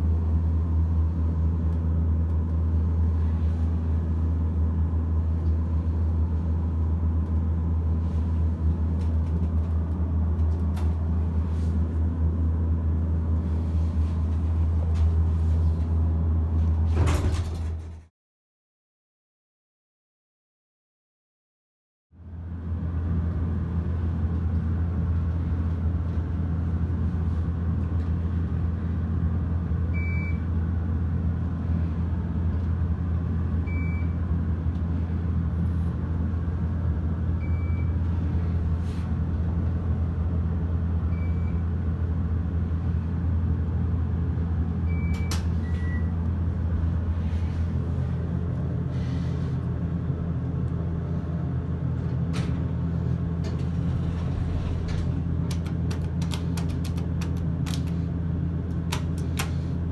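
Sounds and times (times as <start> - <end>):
lift machinery humming: 36.4 - 59.9.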